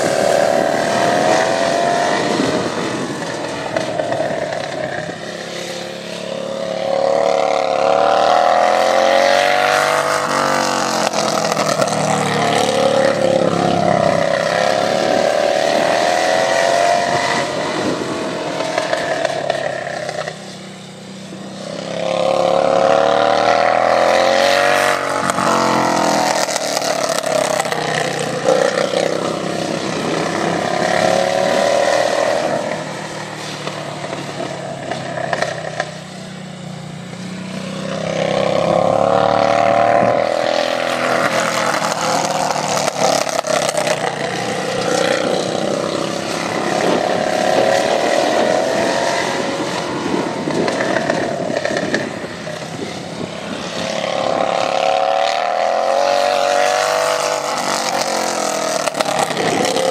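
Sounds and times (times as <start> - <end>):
lawn tractor engine racing: 0.0 - 59.9.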